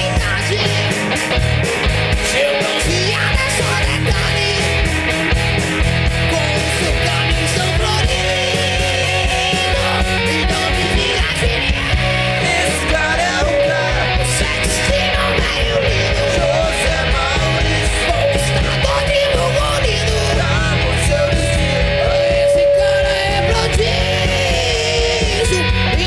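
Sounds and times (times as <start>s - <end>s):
person singing: 0.0s - 1.2s, 2.2s - 5.2s, 6.2s - 26.0s
hard rock band playing: 0.0s - 26.0s.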